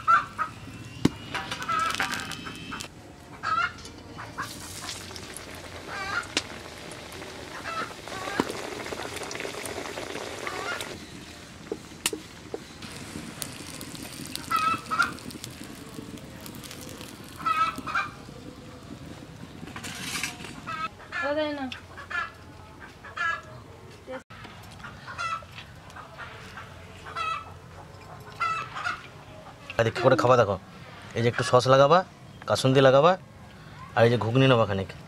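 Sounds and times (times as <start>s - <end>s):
hot oil sizzling: 1.2s - 2.9s, 4.4s - 20.9s.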